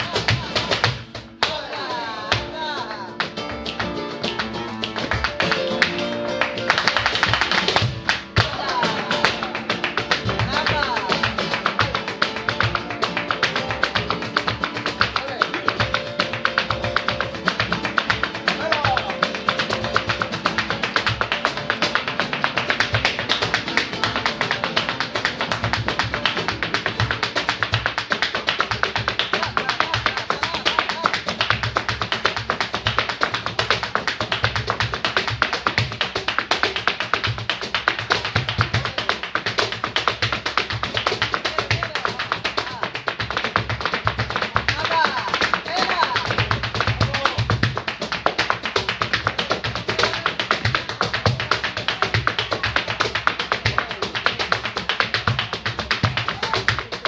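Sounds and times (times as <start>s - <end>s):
acoustic guitars playing: 0.0s - 31.8s
cajon drum: 0.0s - 57.0s
dance footwork taps on wooden stage: 0.0s - 57.0s
hand clapping: 0.0s - 57.0s.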